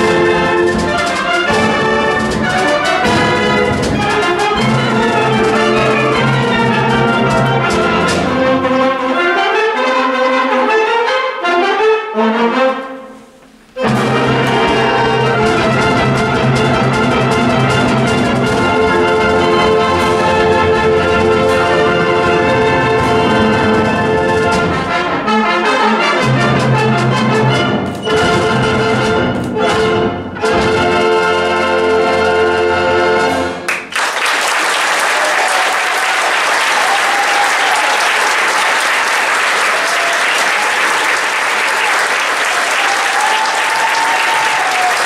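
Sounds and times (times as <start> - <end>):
symphonic band chords: 0.0 - 45.0
audience applauding: 13.8 - 24.6, 33.7 - 45.0.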